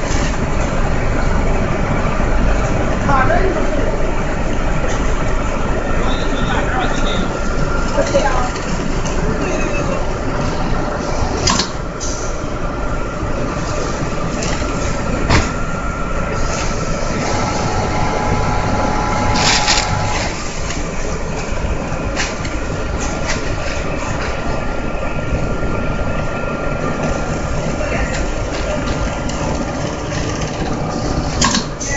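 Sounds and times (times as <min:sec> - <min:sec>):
sewing machine and conveyor running: 0:16.2 - 0:21.7.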